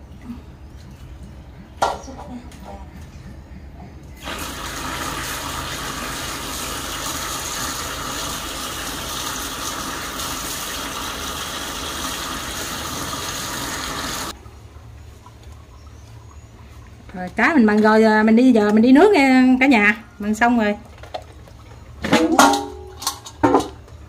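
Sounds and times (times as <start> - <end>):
tap water splashing into metal basin: 21.0 - 23.9.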